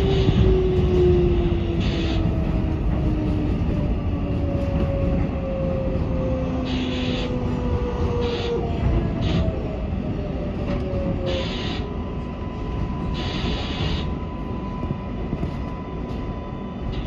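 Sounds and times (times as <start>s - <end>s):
wheels rumbling on rail: 0.0s - 17.0s.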